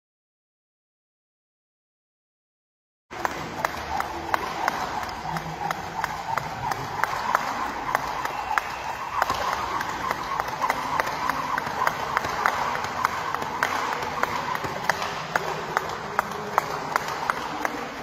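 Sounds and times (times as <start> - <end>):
skipping rope slapping floor: 3.1 - 18.0.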